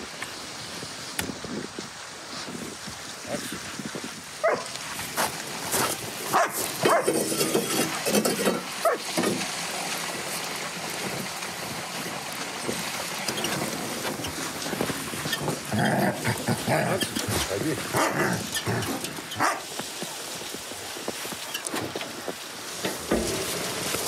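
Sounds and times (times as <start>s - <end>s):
wind-like rushing noise: 0.0s - 6.9s
dog barking: 4.4s - 4.7s, 6.3s - 7.2s, 8.8s - 9.0s, 17.9s - 18.5s, 19.4s - 19.7s.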